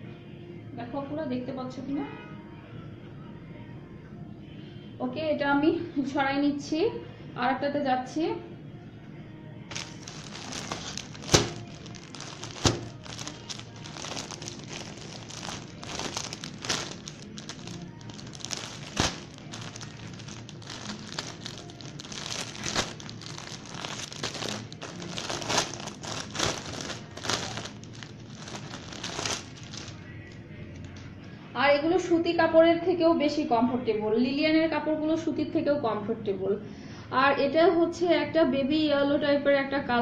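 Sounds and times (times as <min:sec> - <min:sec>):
cloth rustling and crinkling: 0:09.7 - 0:30.1.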